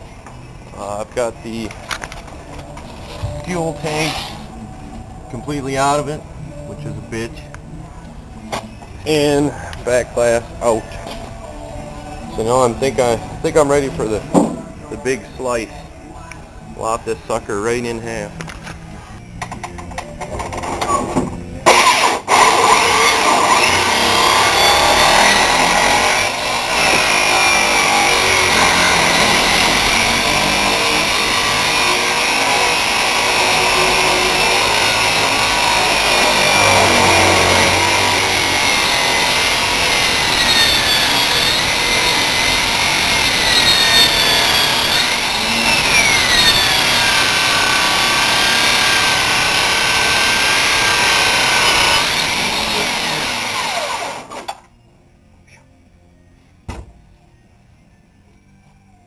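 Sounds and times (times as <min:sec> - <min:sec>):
power saw cutting sheet metal: 0:03.0 - 0:04.5, 0:21.6 - 0:54.6.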